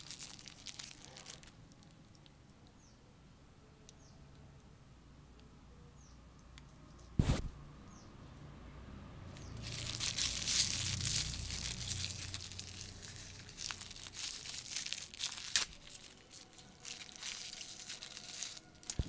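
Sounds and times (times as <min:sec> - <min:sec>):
aluminium foil crinkling: 0:00.0 - 0:02.3, 0:09.4 - 0:19.0.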